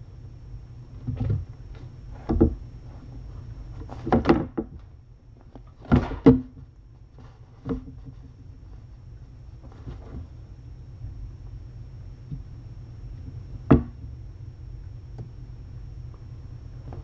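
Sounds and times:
dull thumps and knocks: 0:01.0 - 0:02.6, 0:03.8 - 0:04.9, 0:05.5 - 0:08.4, 0:13.3 - 0:14.2.

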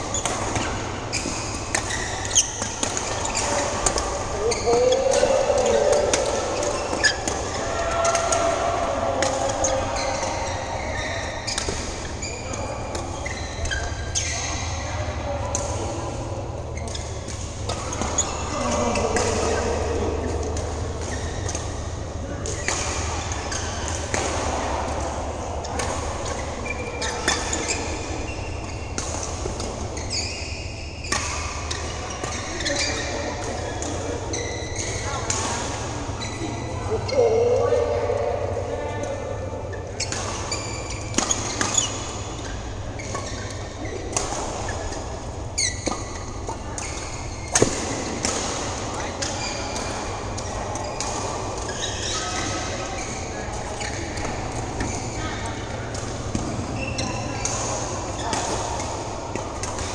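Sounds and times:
shoe squeaks on court: 0:00.1 - 0:07.6, 0:09.6 - 0:15.1, 0:17.8 - 0:19.7, 0:21.1 - 0:21.9, 0:25.6 - 0:29.0, 0:29.9 - 0:35.2, 0:39.7 - 0:47.7, 0:50.8 - 0:55.5, 0:56.2 - 0:58.5
rackets hitting shuttlecocks: 0:00.1 - 0:16.3, 0:39.8 - 0:59.9.

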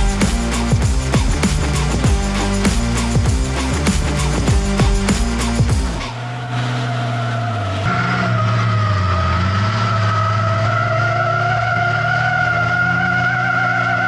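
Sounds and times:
background music: 0:00.0 - 0:14.0
racing engine running: 0:00.0 - 0:14.0
tyres squealing: 0:04.5 - 0:14.0.

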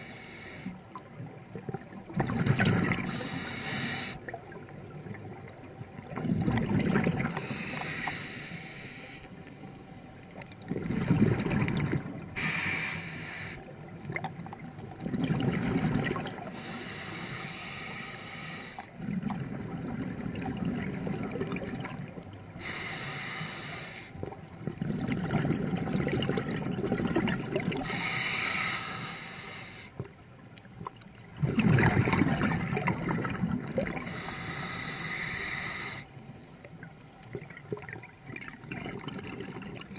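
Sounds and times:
inhalation hissing through valve: 0:00.0 - 0:00.8, 0:03.0 - 0:04.2, 0:07.3 - 0:09.3, 0:12.4 - 0:13.6, 0:16.5 - 0:18.9, 0:22.6 - 0:24.2, 0:27.8 - 0:30.0, 0:34.0 - 0:36.1.

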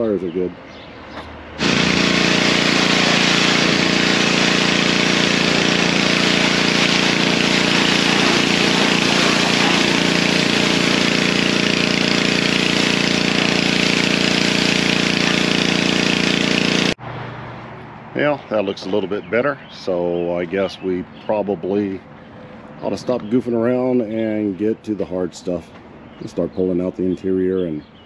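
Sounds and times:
pressure washer motor hum: 0:01.1 - 0:17.0
water jet hissing on car: 0:01.6 - 0:17.0.

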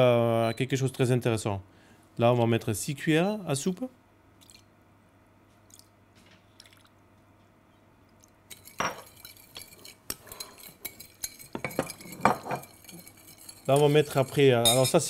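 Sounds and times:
metal spoon clinking on glass bowl: 0:08.5 - 0:15.0.

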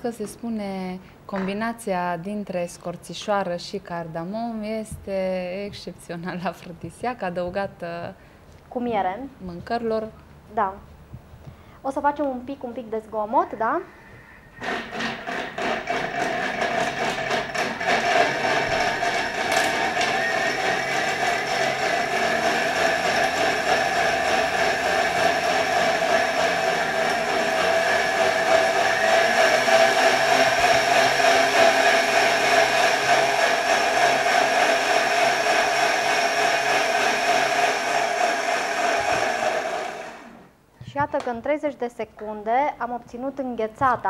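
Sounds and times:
food processor blending: 0:14.6 - 0:40.5.

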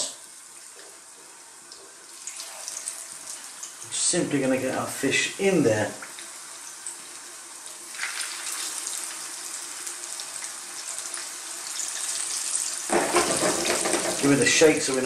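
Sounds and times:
fish sizzling in hot oil: 0:01.0 - 0:03.8, 0:06.1 - 0:15.0.

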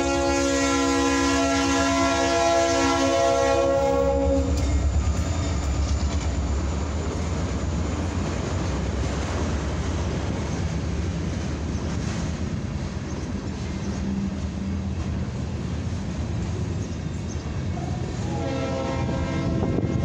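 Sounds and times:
train horn: 0:00.0 - 0:05.6, 0:17.8 - 0:20.0
train cars rumbling past: 0:00.0 - 0:20.0.

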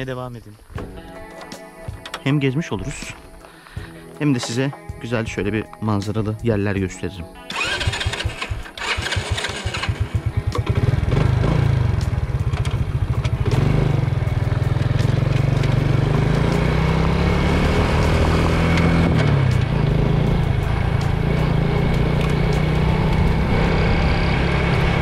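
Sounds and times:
motorcycle engine: 0:07.5 - 0:25.0.

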